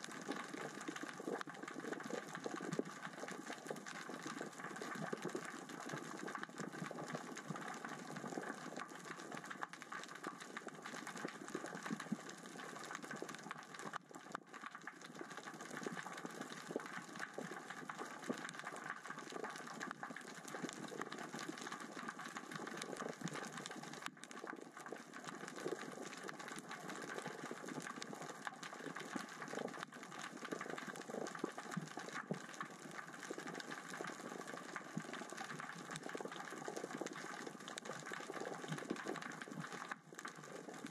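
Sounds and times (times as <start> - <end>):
underwater crackling clicks: 0.0 - 40.9.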